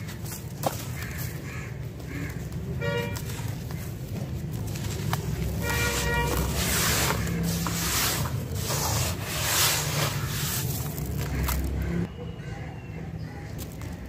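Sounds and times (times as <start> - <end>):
vehicle horn toot: 2.8 - 3.4, 5.6 - 7.4
hands scraping wet sand: 5.1 - 12.0.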